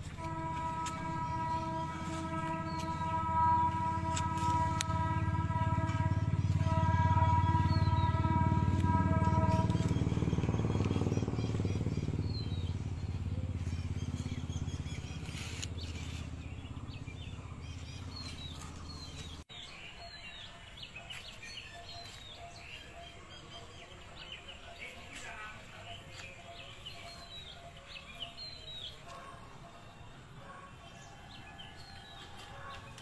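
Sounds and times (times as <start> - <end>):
engine running: 0.0 - 19.5
birds chirping: 0.0 - 33.0.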